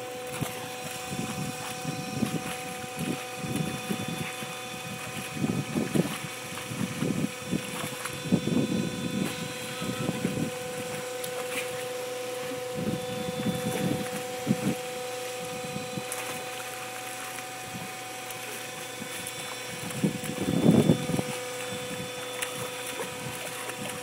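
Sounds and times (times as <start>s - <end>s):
constant hum: 0.0s - 24.0s
water jet spraying: 0.0s - 24.0s
dog splashing in water: 15.4s - 24.0s.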